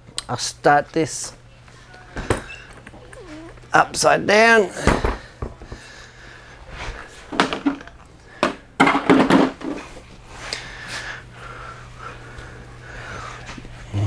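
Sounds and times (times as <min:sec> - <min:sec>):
parts knocking on workbench: 0:08.4 - 0:09.8
steady low hum: 0:10.0 - 0:14.0.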